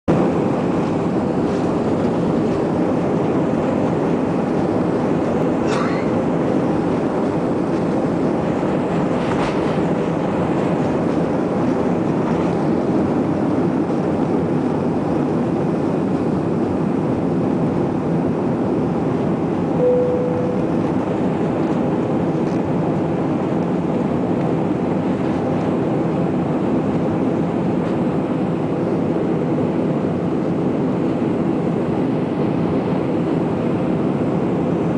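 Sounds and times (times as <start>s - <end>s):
jet engines and wheels rumbling: 0.0s - 34.9s
short steady tone: 19.8s - 21.0s.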